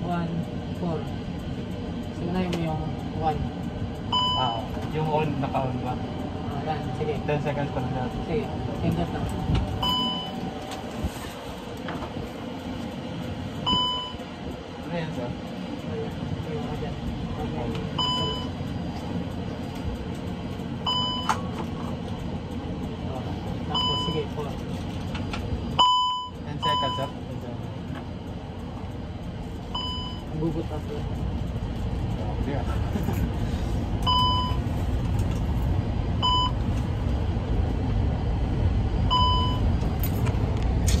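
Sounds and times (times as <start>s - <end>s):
cockpit electrical hum: 0.0s - 41.0s
low rumble: 0.0s - 41.0s
short electronic beep: 9.8s - 10.4s, 39.1s - 39.6s.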